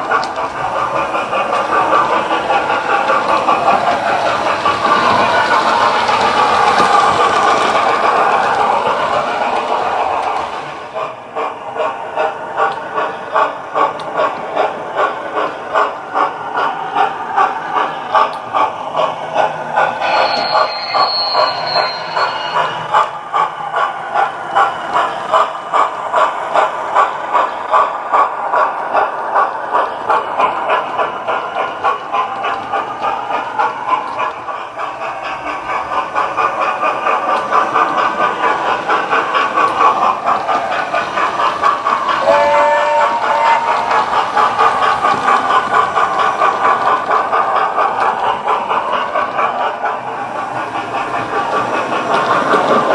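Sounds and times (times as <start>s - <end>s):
steam locomotive exhaust chuffs: 0.0s - 52.9s
high whistle: 20.0s - 22.8s.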